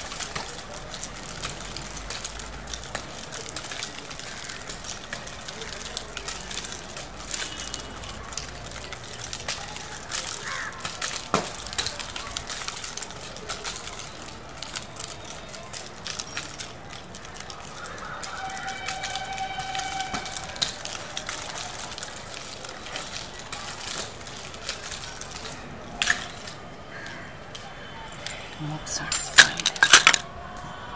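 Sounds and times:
nunchaku chains clicking and clacking: 28.1s - 30.2s.

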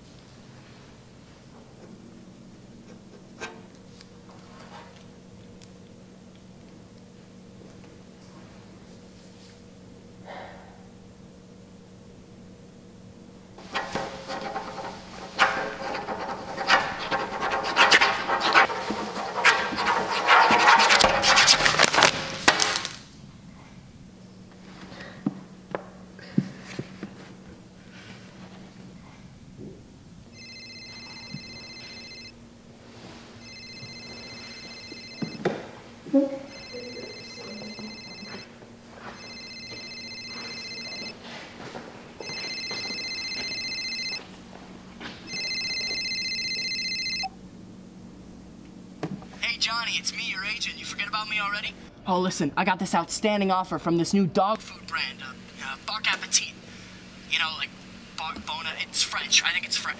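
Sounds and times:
faint low hum: 0.0s - 59.9s
pen scribbling on paper: 13.6s - 22.2s
telephone ringing: 30.3s - 32.4s, 33.4s - 35.5s, 36.4s - 41.2s, 42.2s - 44.4s, 45.2s - 47.4s.

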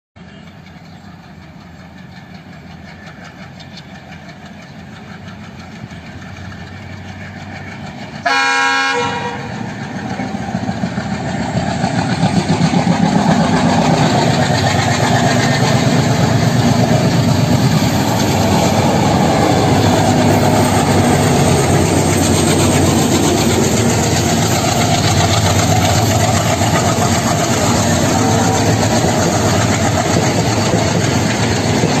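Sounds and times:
diesel locomotive engines: 0.2s - 32.0s
short train horn blast: 8.2s - 9.7s
wheels clattering over rail joints: 9.6s - 32.0s.

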